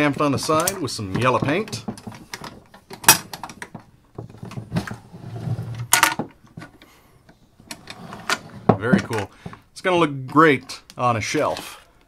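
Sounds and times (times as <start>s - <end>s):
metal latch clacking open: 0.6s - 3.8s.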